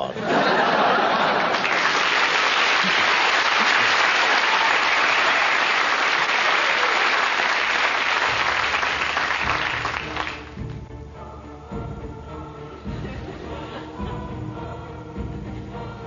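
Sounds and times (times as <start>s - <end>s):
audience applauding: 0.4s - 10.7s
low music: 8.0s - 16.0s.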